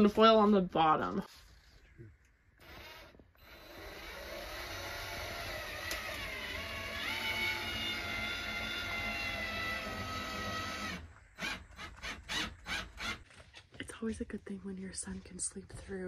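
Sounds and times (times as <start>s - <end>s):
power drill running: 2.6s - 13.2s.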